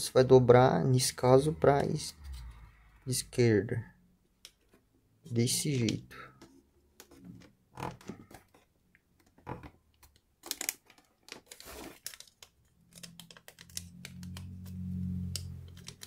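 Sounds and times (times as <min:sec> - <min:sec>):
paper crinkling and folding: 0:10.0 - 0:16.0.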